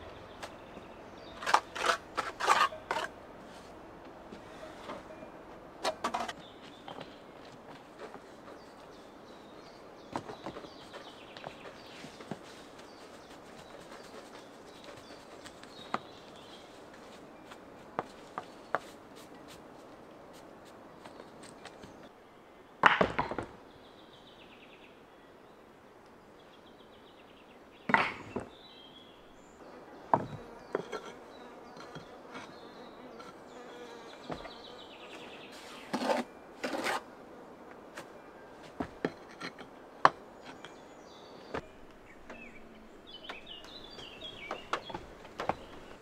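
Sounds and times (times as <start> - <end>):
stone slabs clacking together: 1.4 - 3.1.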